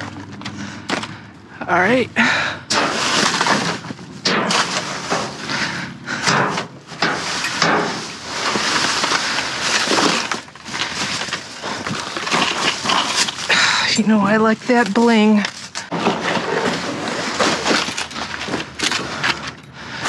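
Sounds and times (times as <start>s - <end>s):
trash rustling: 2.2s - 20.0s
hard items clattering: 2.7s - 13.8s, 15.1s - 19.8s.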